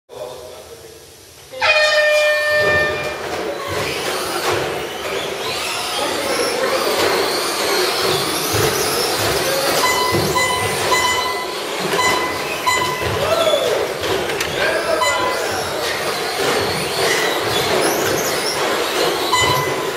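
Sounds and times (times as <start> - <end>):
start tone: 1.6 - 3.3, 9.6 - 13.9, 14.6 - 15.9, 19.2 - 19.9
short beeps: 1.7 - 3.2, 9.8 - 13.6, 14.9 - 15.6, 19.3 - 19.9
rc truck electric motors whining: 2.7 - 19.9.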